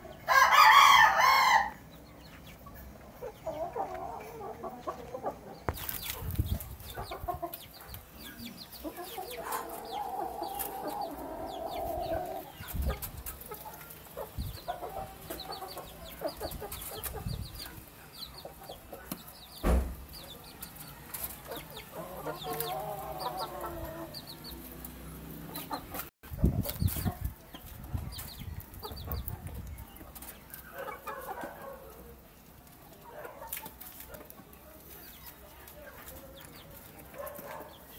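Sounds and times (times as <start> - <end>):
chickens clucking: 0.0 - 37.9
loud thump: 19.6 - 20.1.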